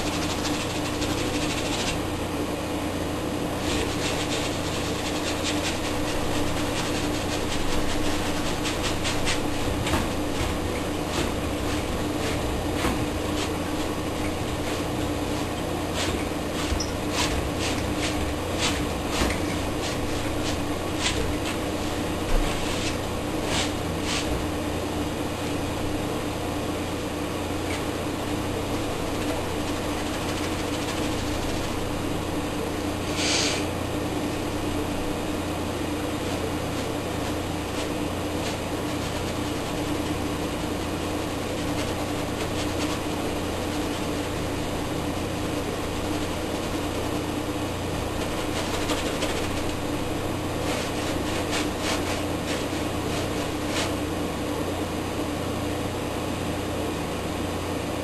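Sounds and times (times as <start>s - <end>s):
mechanical hum with hiss: 0.0s - 58.0s
short hiss: 33.1s - 33.7s.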